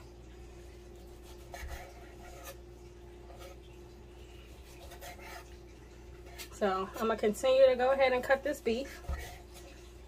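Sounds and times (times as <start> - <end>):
faint steady hum: 0.0 - 10.0
knife cutting on wooden board: 1.2 - 2.6, 4.6 - 5.5, 8.9 - 9.6.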